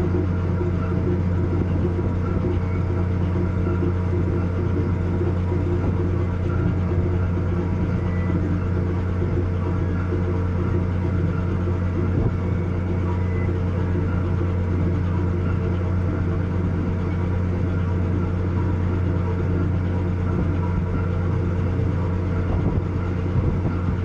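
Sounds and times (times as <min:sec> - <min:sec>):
ship engines droning: 0:00.0 - 0:24.0.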